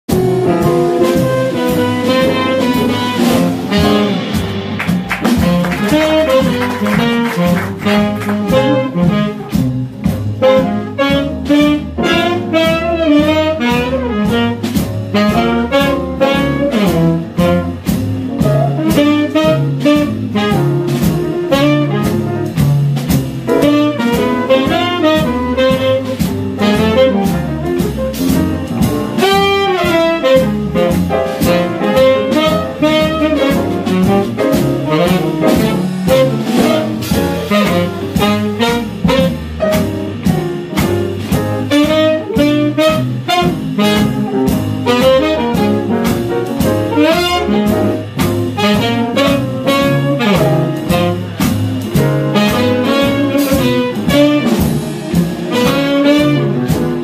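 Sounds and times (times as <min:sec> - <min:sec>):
drums: 0:00.0 - 0:57.0
piano: 0:00.0 - 0:57.0
double bass: 0:00.1 - 0:57.0
muted trumpet: 0:01.0 - 0:04.2, 0:05.4 - 0:09.7, 0:10.4 - 0:17.8, 0:23.6 - 0:27.8, 0:29.2 - 0:39.5, 0:41.6 - 0:46.0, 0:48.6 - 0:51.4, 0:52.3 - 0:54.6, 0:55.5 - 0:56.7
tenor saxophone: 0:01.0 - 0:04.3, 0:05.4 - 0:09.6, 0:10.4 - 0:17.9, 0:18.5 - 0:22.3, 0:23.6 - 0:28.0, 0:28.6 - 0:39.8, 0:41.6 - 0:46.3, 0:46.9 - 0:51.4, 0:52.2 - 0:54.7, 0:55.5 - 0:56.8.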